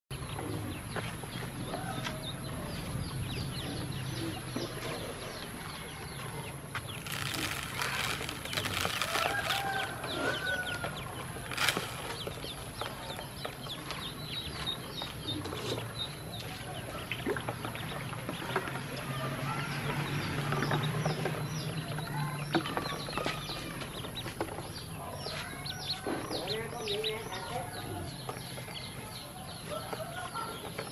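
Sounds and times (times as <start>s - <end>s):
rustling: 6.9s - 10.7s, 11.4s - 12.9s.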